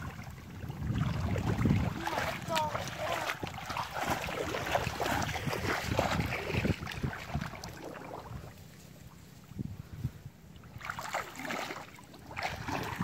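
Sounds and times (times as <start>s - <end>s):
splashing through muddy water: 0.0s - 9.6s, 10.5s - 13.0s.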